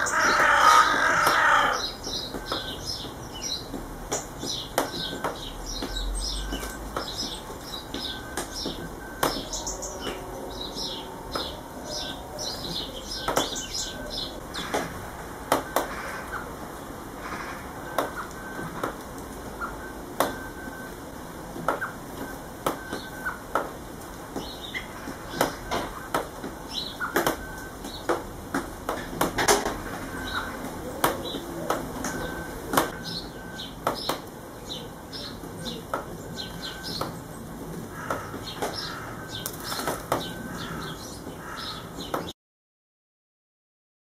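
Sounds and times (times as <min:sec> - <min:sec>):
bird chirps: 0:00.0 - 0:14.8, 0:30.1 - 0:31.4, 0:32.0 - 0:37.5.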